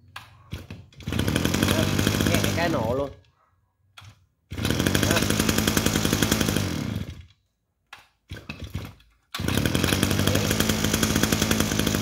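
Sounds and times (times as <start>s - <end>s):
engine pull-start: 0.2s - 3.1s, 4.0s - 7.4s, 8.3s - 12.0s
brush-cutter engine idling: 1.0s - 3.1s, 4.5s - 7.3s, 8.6s - 12.0s.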